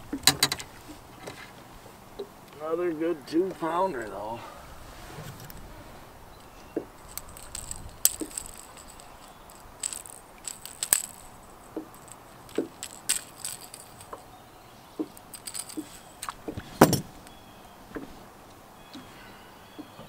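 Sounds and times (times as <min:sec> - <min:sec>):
metallic hook clicks and rattles: 0:07.0 - 0:14.3, 0:15.0 - 0:17.4.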